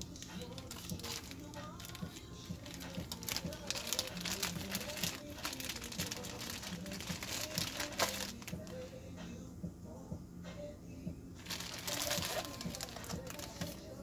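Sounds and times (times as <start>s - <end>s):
crinkling and rustling: 0.0s - 8.8s, 11.4s - 14.0s.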